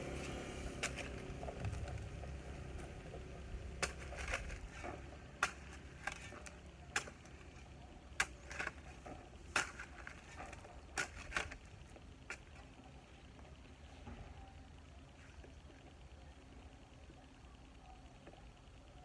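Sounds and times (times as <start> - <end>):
shovel scraping soil: 0.2 - 1.3, 3.8 - 11.6
soil thuds: 0.7 - 12.7.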